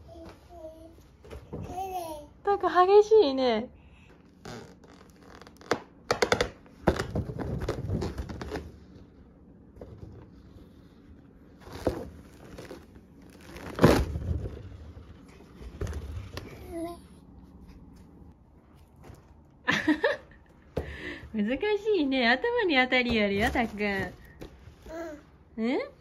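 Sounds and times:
plastic balloon rubbing and crinkling: 4.3s - 5.8s, 6.8s - 9.2s, 9.8s - 16.9s.

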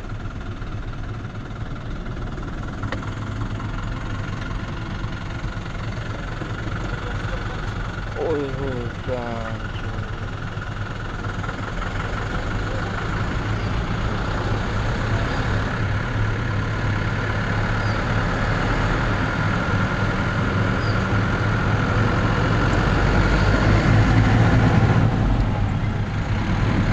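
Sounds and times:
large vehicle engine drone: 0.0s - 26.9s.

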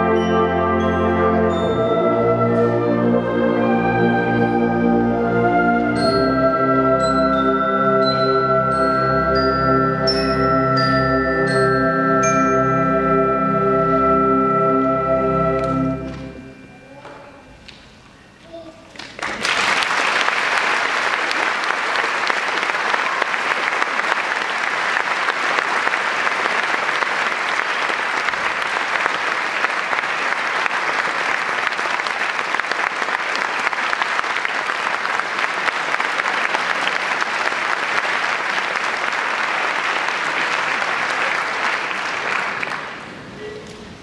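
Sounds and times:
audience applauding: 19.0s - 43.3s.

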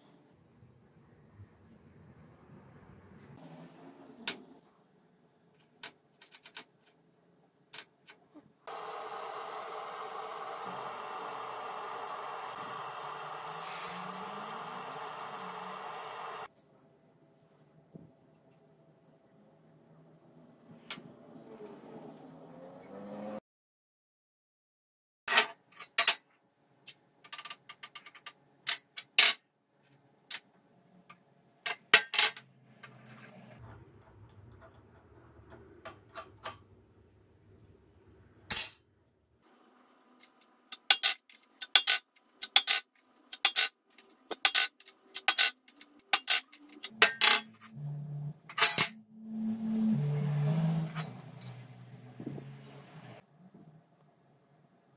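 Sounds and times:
steel parts clinking: 40.7s - 47.8s, 48.5s - 49.0s.

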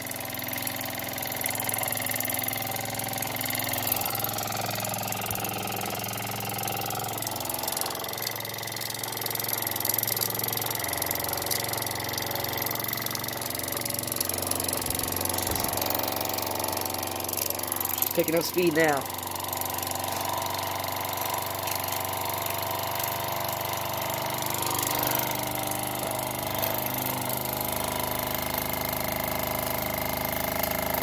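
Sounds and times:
toy steam engine running: 0.0s - 31.0s
ticking and clattering: 3.4s - 27.4s.

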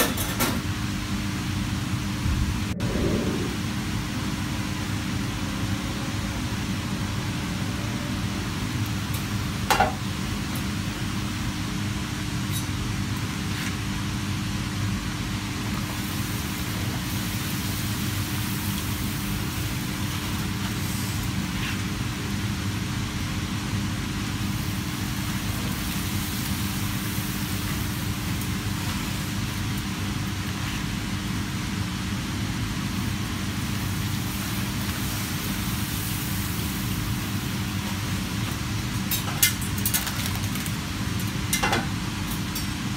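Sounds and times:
low machine hum: 0.8s - 9.6s
food sizzling in hot oil: 15.8s - 22.1s, 23.9s - 31.6s, 32.9s - 40.4s.

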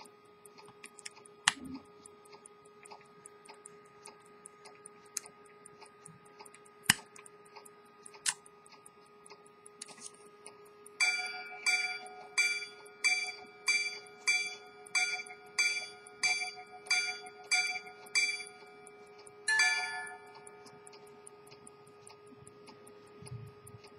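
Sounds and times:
sharp clicks: 0.4s - 11.0s
repeater hammers striking gong: 11.0s - 18.5s, 19.5s - 20.3s.

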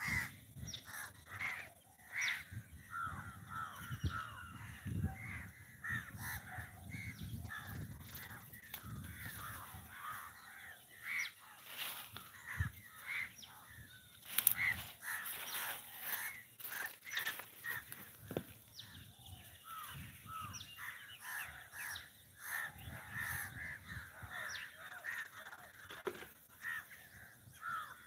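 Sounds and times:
crows cawing: 0.0s - 19.0s, 19.6s - 28.0s.

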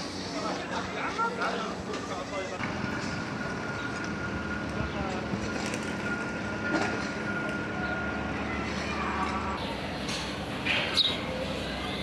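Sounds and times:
steady mechanical hum: 0.0s - 12.0s
faint voices: 4.7s - 12.0s.

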